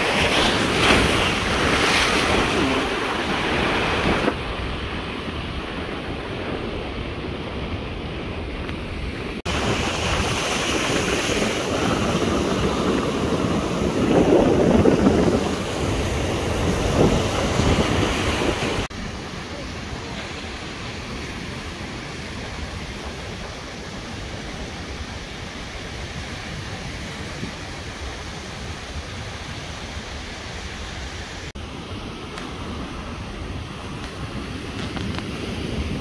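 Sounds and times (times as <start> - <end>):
wind on microphone: 0.0 - 20.2
surf breaking on shore: 0.0 - 36.0.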